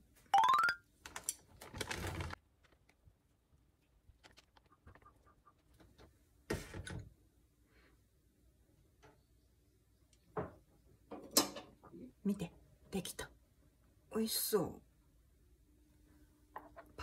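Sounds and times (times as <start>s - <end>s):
plastic bag rustling: 1.0s - 3.2s.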